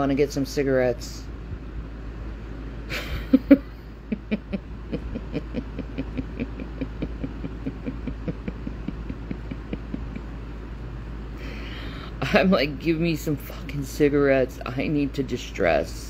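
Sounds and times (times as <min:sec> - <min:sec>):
woman laughing softly: 0:02.9 - 0:12.2.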